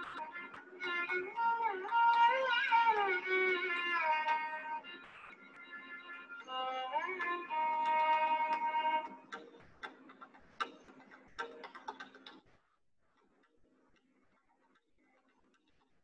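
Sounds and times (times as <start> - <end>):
faint clicks and ticks: 7.2 - 16.0.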